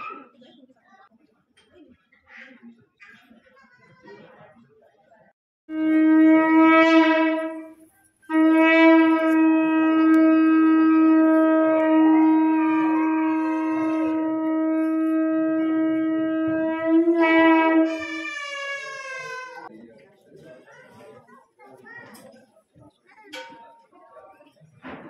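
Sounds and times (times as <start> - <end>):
conch shell blown: 5.7 - 18.2.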